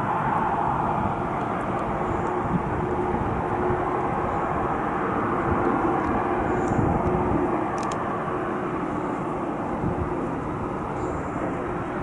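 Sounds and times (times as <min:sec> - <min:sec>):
jet engines running: 0:00.0 - 0:12.0.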